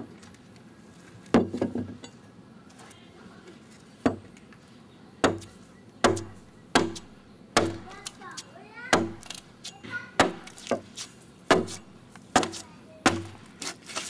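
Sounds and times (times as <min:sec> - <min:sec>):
blade chopping into wood: 0:10.2 - 0:14.0.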